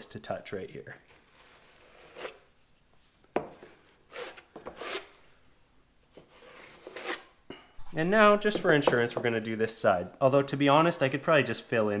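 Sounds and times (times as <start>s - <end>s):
drywall knife scraping compound: 1.0s - 2.5s, 3.8s - 5.2s, 6.1s - 7.4s.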